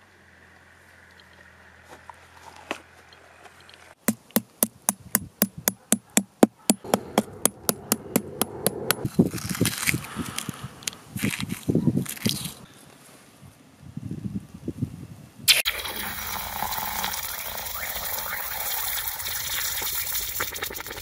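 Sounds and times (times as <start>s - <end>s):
hammer tapping on eggshell: 4.0s - 9.1s.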